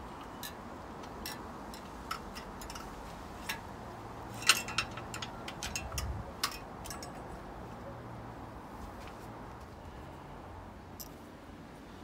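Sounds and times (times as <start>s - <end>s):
metal clicks and clinks of rack: 0.2s - 3.7s, 4.3s - 7.4s.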